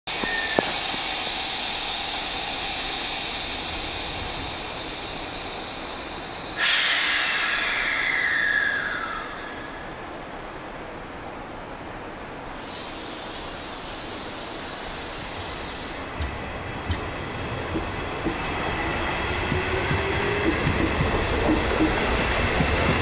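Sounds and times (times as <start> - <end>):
train hissing: 0.1 - 10.5, 11.8 - 23.0
compressed air blast: 6.6 - 7.8.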